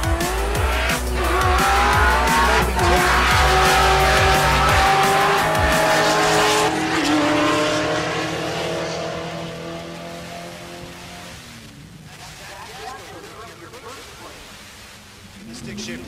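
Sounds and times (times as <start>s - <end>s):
background music: 0.0s - 9.0s
drag car engines accelerating: 0.0s - 14.1s.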